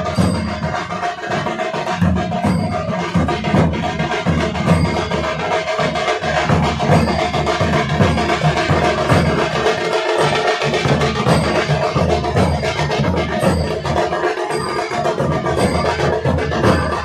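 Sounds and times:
rhythmic drumming: 0.0 - 17.0
sharp percussive strokes: 0.0 - 17.0.

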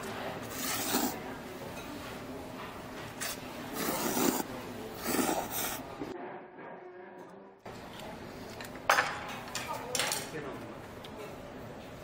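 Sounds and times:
person slurping noodles: 0.4 - 1.2, 3.2 - 5.9.

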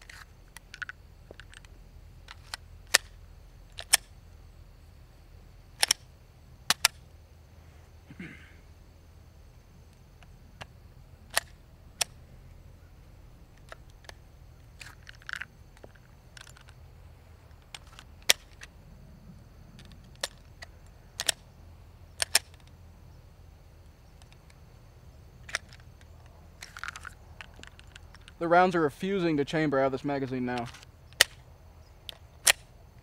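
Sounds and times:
pistol metallic clicks and clacks: 0.1 - 4.2, 5.8 - 6.1, 6.7 - 7.0, 11.3 - 12.2, 17.5 - 18.7, 19.8 - 21.4, 22.1 - 22.7, 25.4 - 28.4, 30.5 - 33.0.

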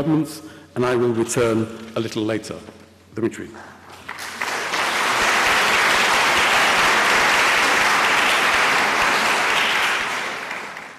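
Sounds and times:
audience applauding: 3.9 - 10.9.

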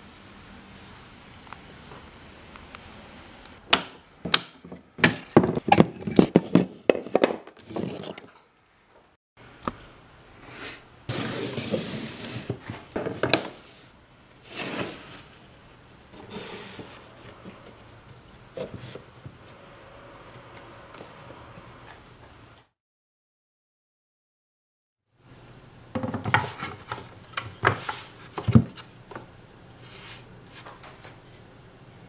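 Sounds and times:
wood pieces scraping on bench: 16.1 - 17.8.

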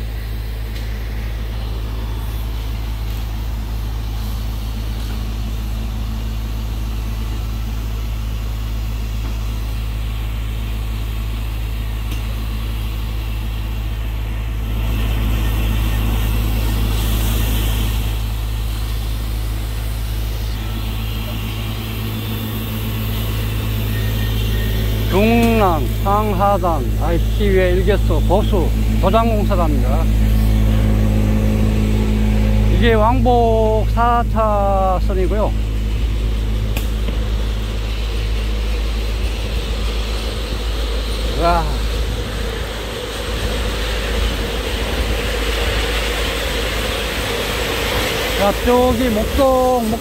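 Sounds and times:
low machine hum: 0.0 - 50.0
traffic rumble: 0.0 - 50.0
heavy vehicle passing: 14.6 - 50.0.

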